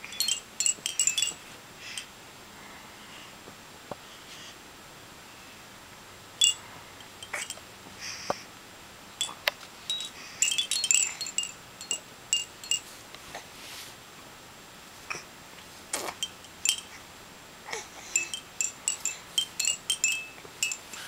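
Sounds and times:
hanging toys tinkling: 0:00.0 - 0:02.1, 0:06.4 - 0:07.7, 0:09.2 - 0:13.0, 0:16.1 - 0:17.0, 0:18.0 - 0:21.0.

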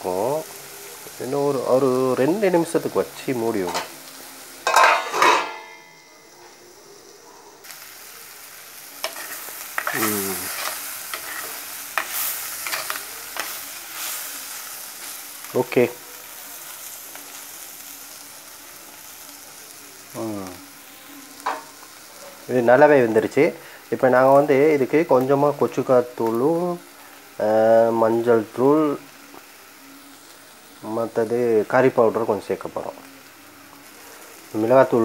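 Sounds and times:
curry sizzling in a pot: 0:00.0 - 0:35.0
metal spoon scraping pot: 0:04.7 - 0:05.7.

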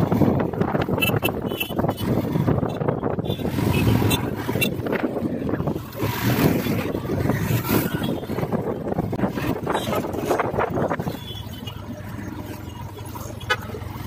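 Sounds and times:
wind buffeting microphone: 0:00.0 - 0:11.2
city traffic: 0:00.0 - 0:14.0.

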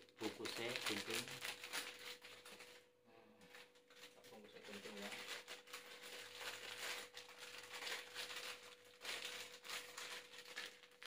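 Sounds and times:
plastic packet crinkling: 0:00.0 - 0:02.9, 0:03.5 - 0:11.0.

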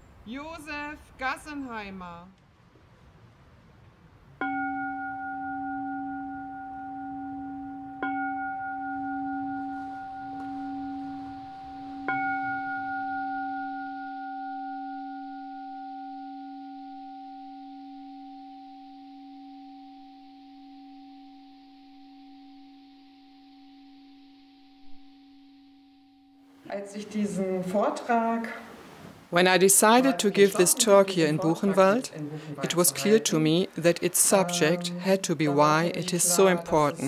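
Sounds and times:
meditation bowl bell ringing: 0:04.4 - 0:26.6.

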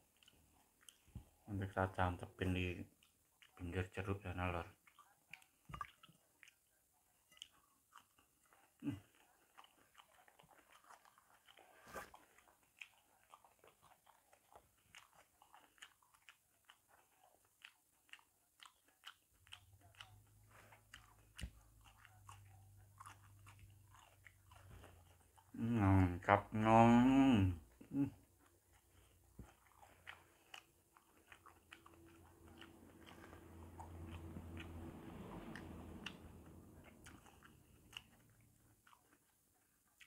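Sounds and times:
chewing and mouth smacks: 0:00.0 - 0:01.9, 0:02.6 - 0:25.7, 0:27.6 - 0:40.0
low steady hum: 0:19.5 - 0:38.9.

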